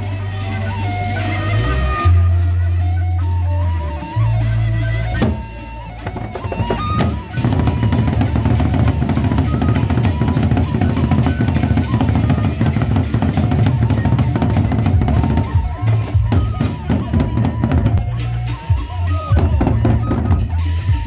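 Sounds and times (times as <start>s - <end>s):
barrel drums beaten with sticks: 5.2s - 21.0s.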